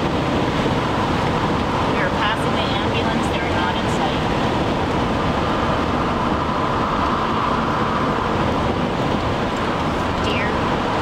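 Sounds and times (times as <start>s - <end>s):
car road and tyre noise: 0.0s - 11.0s.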